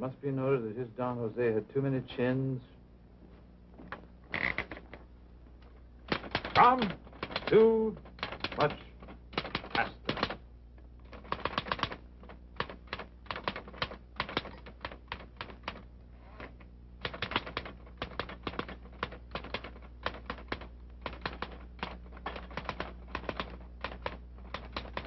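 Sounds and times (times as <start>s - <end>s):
steady low hum: 0.0s - 25.0s
typewriter keys clacking: 6.1s - 10.4s, 11.1s - 15.8s, 17.0s - 25.0s.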